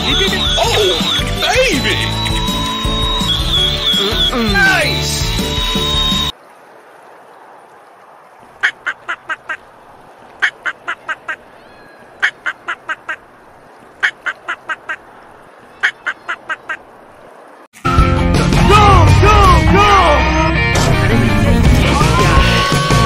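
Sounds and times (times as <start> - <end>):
duck quacking: 8.6 - 9.6, 12.2 - 13.3, 14.0 - 15.1, 15.8 - 16.9.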